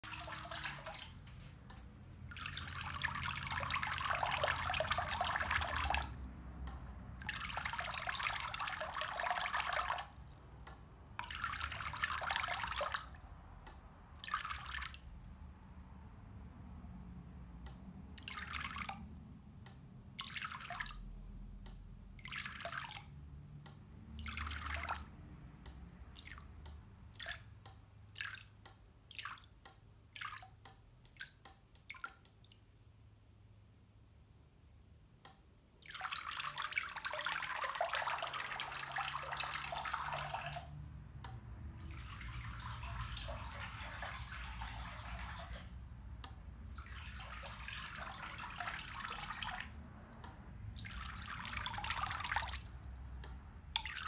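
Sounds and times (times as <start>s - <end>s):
water jets splashing into a bowl: 0.0s - 1.7s, 2.3s - 10.6s, 11.2s - 13.5s, 35.8s - 40.8s, 41.7s - 45.8s, 46.7s - 54.0s
water dripping: 0.0s - 33.1s, 35.2s - 54.0s.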